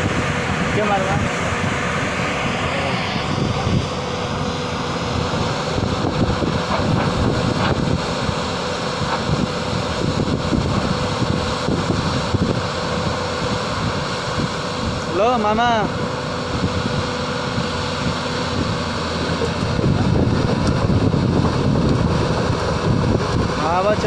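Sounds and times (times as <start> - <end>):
excavator diesel engine running: 0.0 - 24.0
steady whine: 0.0 - 24.0
wind buffeting microphone: 0.0 - 24.0.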